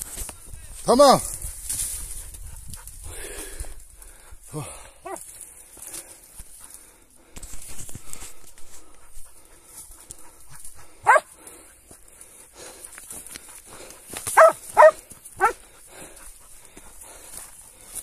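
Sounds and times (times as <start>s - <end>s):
dog barking: 11.0s - 11.3s, 14.4s - 15.6s.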